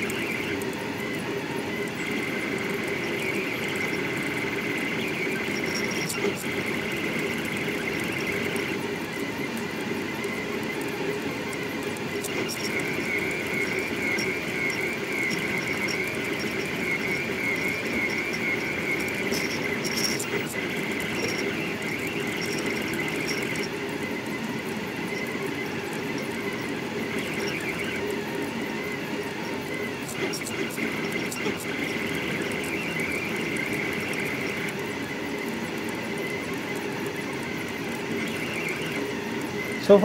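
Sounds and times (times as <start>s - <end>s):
faint rapid ticks: 0.0s - 40.0s
stepper motors whining: 0.0s - 40.0s.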